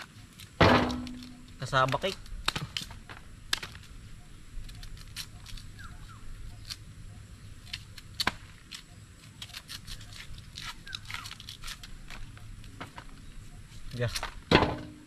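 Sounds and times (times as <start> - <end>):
knives scraping peel: 7.7 - 12.3.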